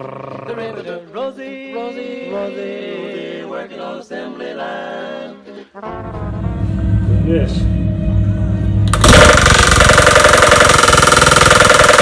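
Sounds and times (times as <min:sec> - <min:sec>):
male vocal group singing harmony: 0:00.0 - 0:05.9.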